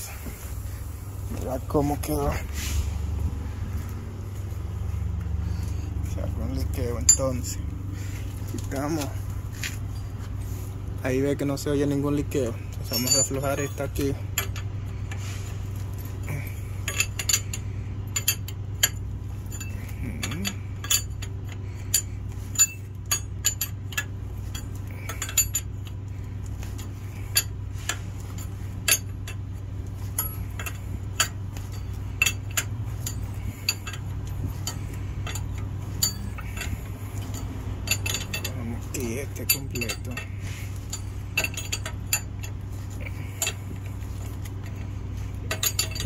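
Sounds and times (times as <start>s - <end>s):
steady low hum: 0.0s - 46.0s
wrench clinking against metal nut: 11.5s - 14.8s, 15.9s - 29.4s, 30.0s - 46.0s.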